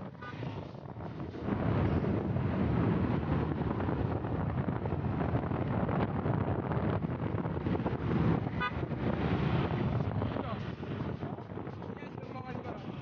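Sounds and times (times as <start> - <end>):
vehicle rumble on paved road: 0.0 - 13.0
wind buffeting microphone: 0.0 - 13.0
car horn toot: 8.5 - 8.9.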